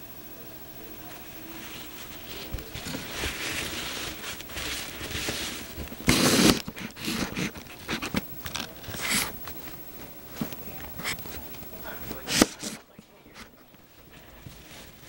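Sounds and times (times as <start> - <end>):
paper napkin rustling: 1.2 - 11.5, 13.6 - 15.0.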